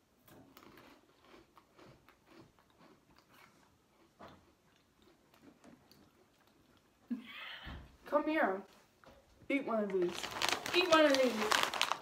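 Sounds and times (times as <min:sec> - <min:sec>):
chewing crunchy biscuit sticks: 0:00.2 - 0:07.1, 0:10.1 - 0:12.0.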